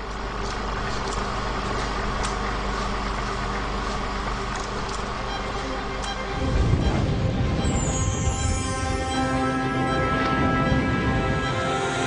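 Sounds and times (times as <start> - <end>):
film projector whirring: 0.0 - 6.4.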